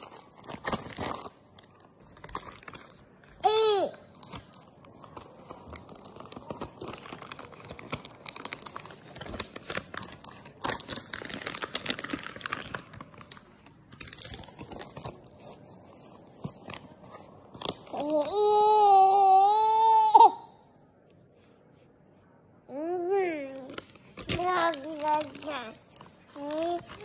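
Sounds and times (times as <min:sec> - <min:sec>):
plastic packet crinkling: 0:00.0 - 0:03.2, 0:04.1 - 0:15.4, 0:23.6 - 0:27.0.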